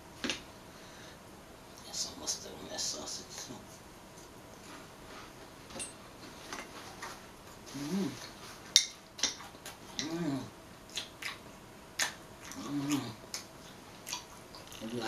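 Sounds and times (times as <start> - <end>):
person humming mmm: 7.7 - 8.4, 9.9 - 10.5, 12.5 - 13.2
person eating with mouth smacks: 9.2 - 11.4.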